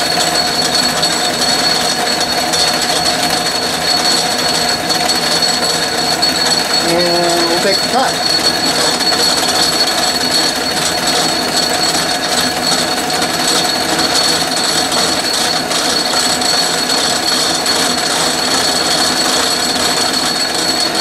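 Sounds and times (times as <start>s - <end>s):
metal lathe running: 0.0s - 21.0s
high whine: 2.3s - 17.0s.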